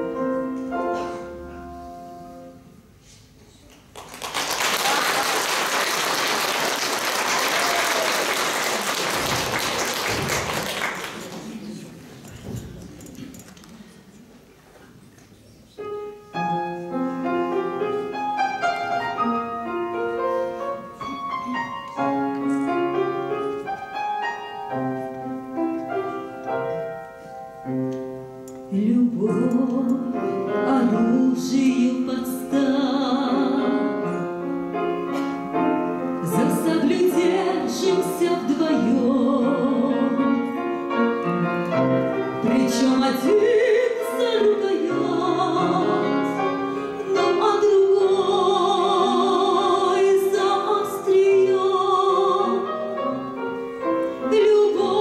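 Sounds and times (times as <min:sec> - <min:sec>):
grand piano playing: 0:00.0 - 0:03.0, 0:15.8 - 0:55.0
woman singing with vibrato: 0:28.7 - 0:34.2, 0:36.2 - 0:40.4, 0:42.4 - 0:52.7, 0:54.2 - 0:55.0.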